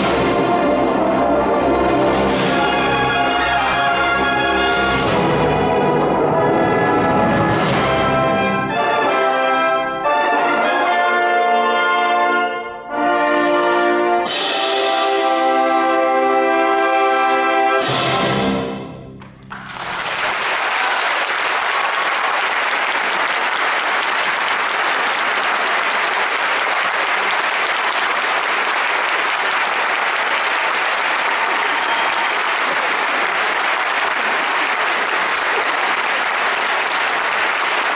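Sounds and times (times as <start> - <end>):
audience applause: 19.2 - 37.9.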